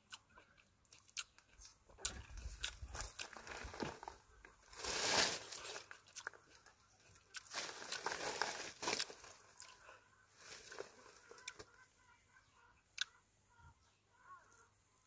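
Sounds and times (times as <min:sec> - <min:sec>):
chewing: 0:00.0 - 0:04.6, 0:05.6 - 0:11.8.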